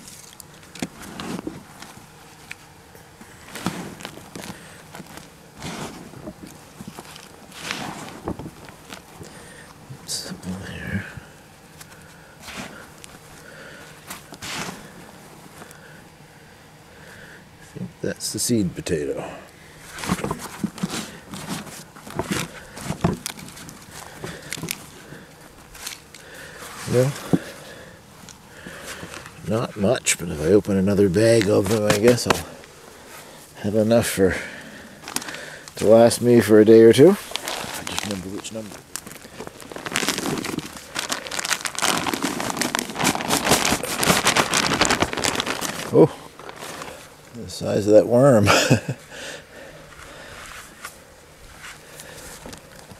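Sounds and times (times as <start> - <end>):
hands digging through soil: 3.2 - 9.4, 11.8 - 15.7, 19.8 - 34.0, 35.0 - 47.8.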